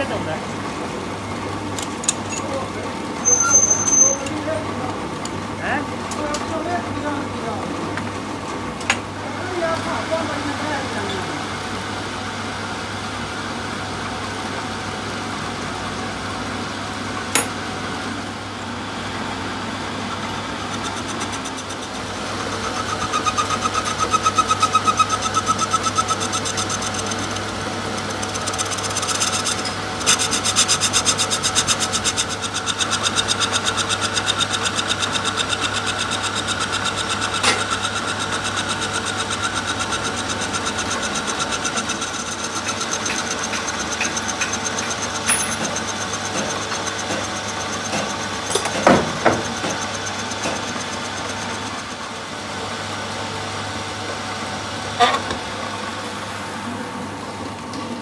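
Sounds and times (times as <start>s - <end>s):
motor hum: 0.0s - 58.0s
lathe tool rasping metal: 20.0s - 52.3s.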